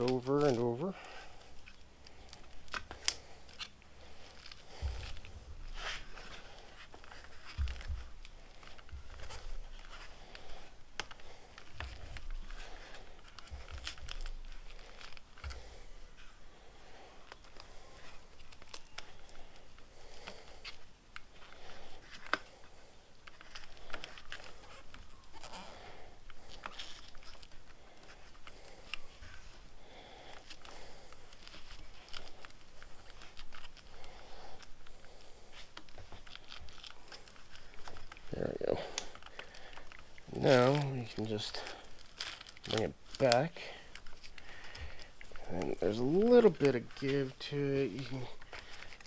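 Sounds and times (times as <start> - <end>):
rubber sleeve rubbing and rustling: 0.0 - 49.0.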